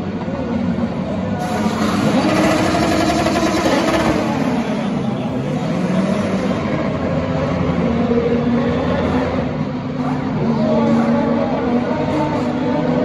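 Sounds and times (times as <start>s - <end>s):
race car engine pulling away: 1.4s - 8.1s.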